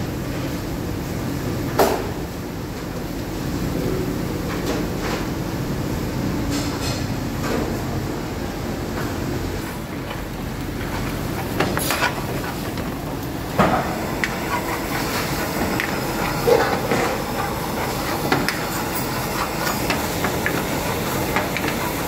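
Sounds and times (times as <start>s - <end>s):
gas burner flame roaring: 0.0s - 22.0s
curry sizzling: 9.6s - 22.0s.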